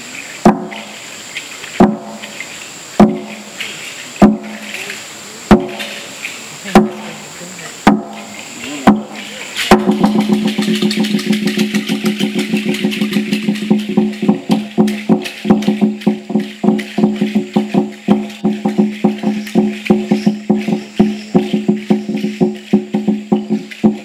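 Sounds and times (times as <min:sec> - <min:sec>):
slit drum struck with sticks: 0:00.4 - 0:01.0, 0:01.8 - 0:02.4, 0:03.0 - 0:04.9, 0:05.5 - 0:06.1, 0:06.7 - 0:07.2, 0:07.8 - 0:24.0.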